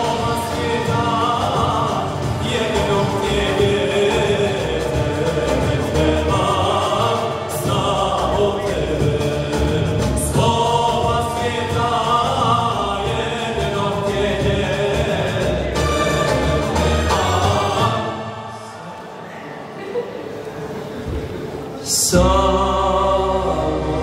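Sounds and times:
male group singing: 0.0 - 19.0, 21.8 - 24.0
keyboard: 0.0 - 24.0.

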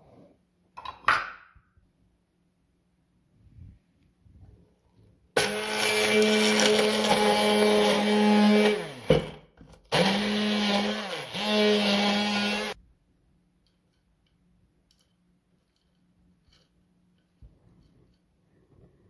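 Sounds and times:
immersion blender running: 5.4 - 9.3, 9.9 - 12.8.

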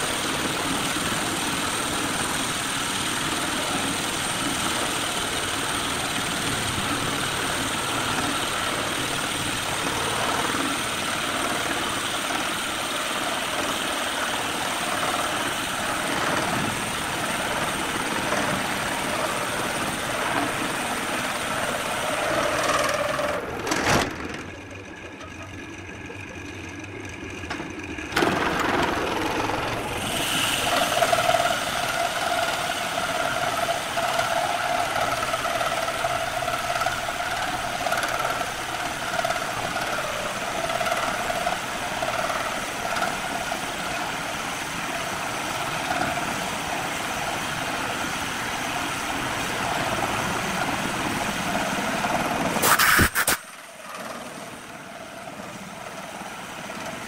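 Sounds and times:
lathe humming: 0.0 - 52.7
tool scraping wood with whine: 52.6 - 53.5.

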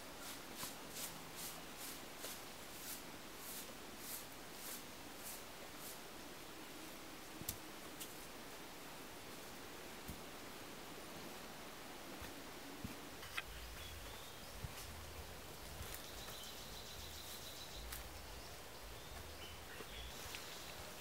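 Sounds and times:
faint forest ambience: 0.0 - 21.0
high thin bird or insect call: 13.2 - 21.0.

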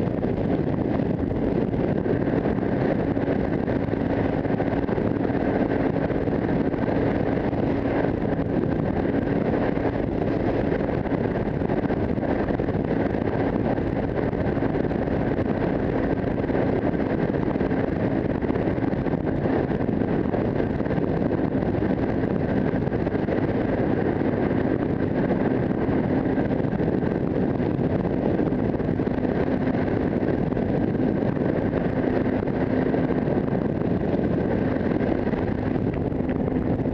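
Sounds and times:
heavy wind noise on microphone: 0.0 - 36.9
motorcycle engine cruising: 0.0 - 36.9.

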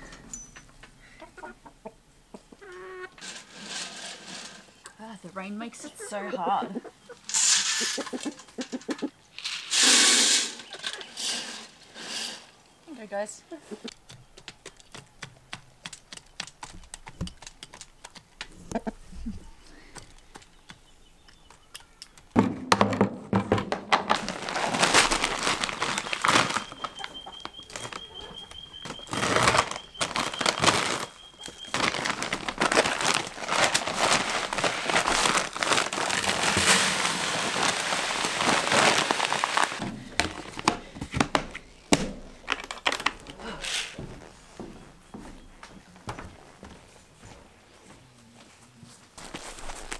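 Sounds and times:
grains pouring into bucket: 9.4 - 10.6, 24.2 - 26.7, 32.0 - 39.8
feed bag crinkling: 24.0 - 40.7, 49.2 - 49.9.

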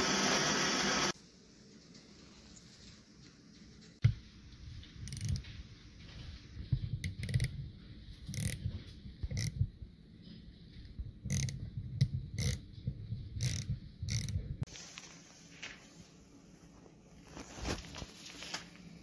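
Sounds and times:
thread tap clicking and creaking in metal: 5.1 - 5.4, 7.0 - 7.6, 8.3 - 9.6, 11.3 - 12.6, 13.4 - 14.5.

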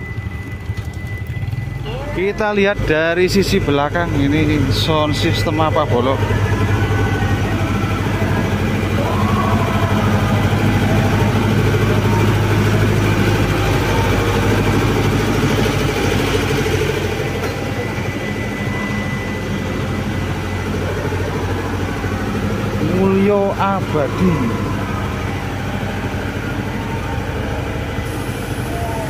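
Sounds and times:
large engine idling: 0.0 - 29.0.

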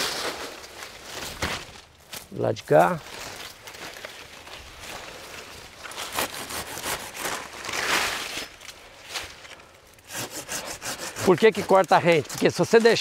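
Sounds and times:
hand saw cutting branch: 5.8 - 8.4, 10.0 - 13.0.

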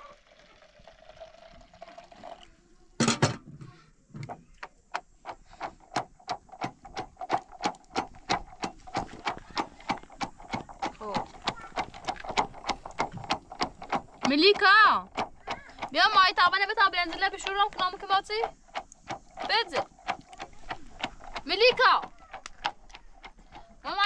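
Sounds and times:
water pouring into plastic bottle: 0.0 - 2.6
wooden pestle pounding: 4.2 - 24.0.

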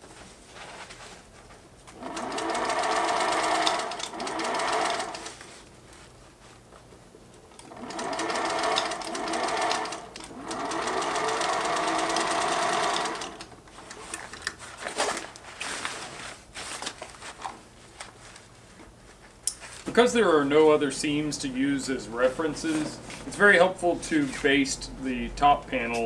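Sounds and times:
sewing machine stitching: 1.9 - 5.4, 7.6 - 13.5.

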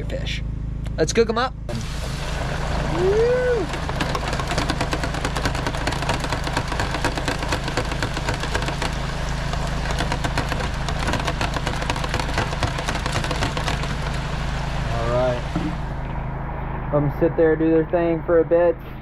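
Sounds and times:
low mechanical hum: 0.0 - 19.0
oil bubbling and crackling: 1.7 - 16.1.

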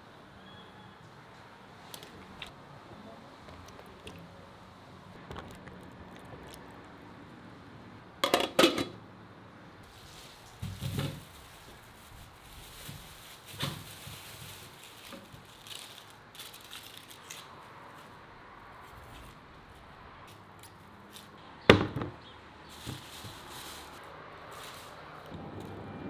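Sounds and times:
plastic bag rustling: 9.8 - 17.5, 22.6 - 25.9.

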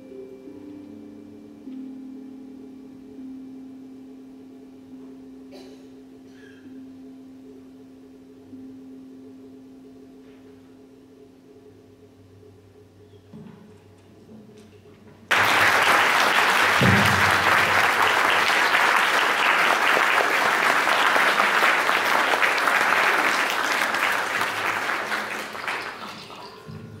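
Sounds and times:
audience applauding: 15.3 - 26.7.

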